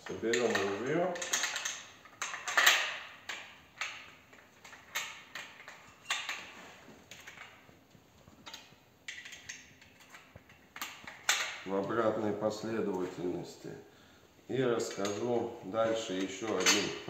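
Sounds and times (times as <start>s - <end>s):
shotgun parts clicking together: 0.3s - 6.5s, 8.4s - 11.6s.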